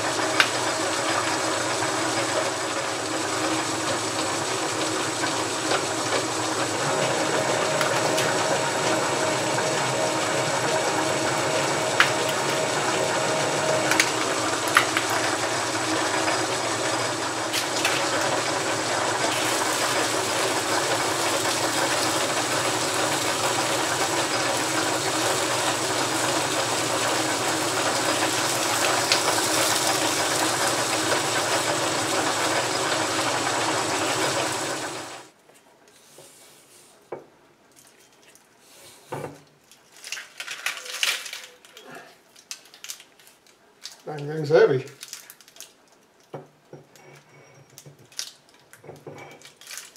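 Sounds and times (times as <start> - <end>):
metal lathe running: 0.0 - 35.3.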